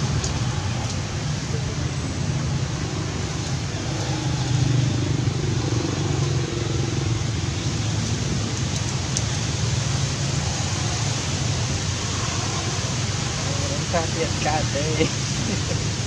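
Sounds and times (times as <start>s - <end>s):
low rumbling background noise: 0.0s - 16.0s.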